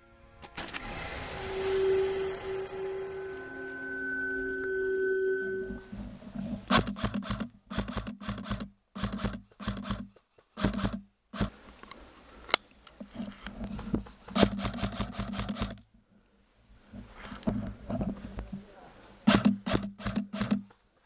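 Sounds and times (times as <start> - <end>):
footsteps crunching dry leaves: 0.8 - 4.6.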